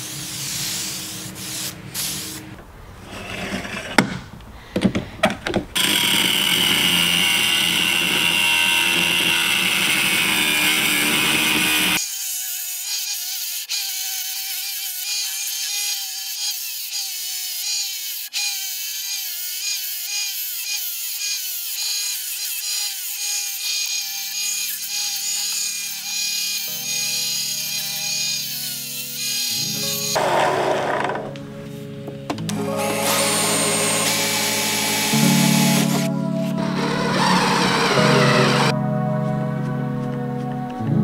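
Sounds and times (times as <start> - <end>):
power tool running: 5.8 - 19.2, 21.3 - 31.4, 32.4 - 38.8
background music: 28.8 - 41.0.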